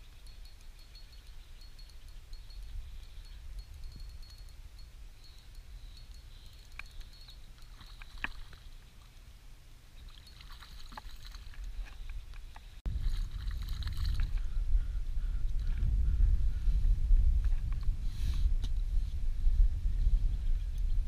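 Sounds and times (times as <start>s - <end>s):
water lapping: 10.0s - 11.8s.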